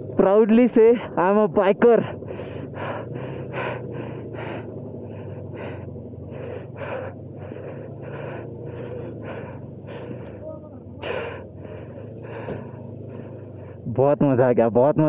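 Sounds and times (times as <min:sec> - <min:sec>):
steady low hum: 0:00.0 - 0:14.3
person breathing hard: 0:02.0 - 0:13.9.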